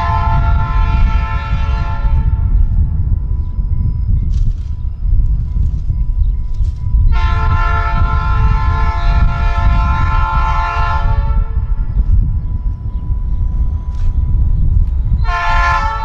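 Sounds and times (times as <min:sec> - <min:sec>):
locomotive air horn blast: 0:00.0 - 0:02.6, 0:07.1 - 0:11.9, 0:15.2 - 0:16.0
low rumble: 0:00.0 - 0:16.0.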